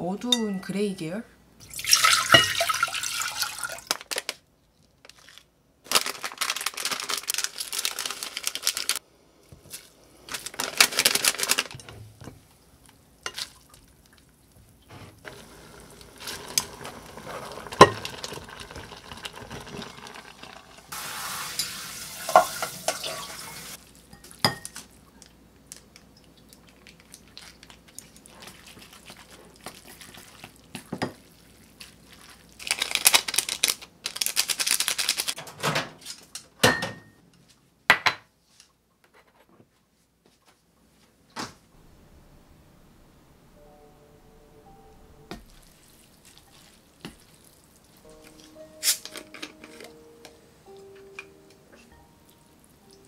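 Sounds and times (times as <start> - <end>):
water poured into pot: 1.6 - 4.0, 15.3 - 23.8
noodles stirred with chopsticks: 14.4 - 20.9, 27.0 - 32.9, 45.6 - 48.0.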